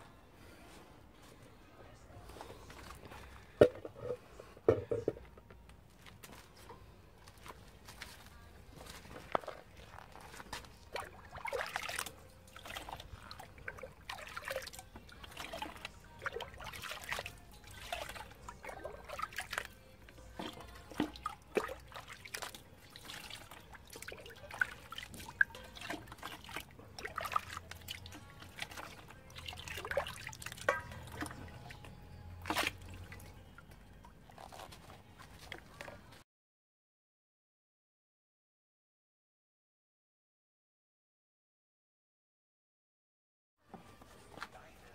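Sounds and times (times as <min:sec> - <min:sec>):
water splashing and trickling: 0:06.0 - 0:36.2
ladle scooping and pouring liquid: 0:08.2 - 0:36.0.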